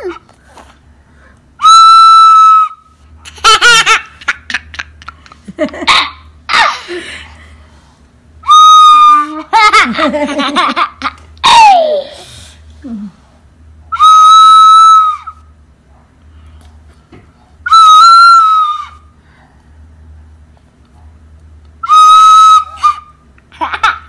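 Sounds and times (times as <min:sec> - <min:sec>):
toy recorder shrill note: 0:01.6 - 0:02.8, 0:08.5 - 0:09.3, 0:14.0 - 0:15.3, 0:17.7 - 0:18.9, 0:21.8 - 0:23.0.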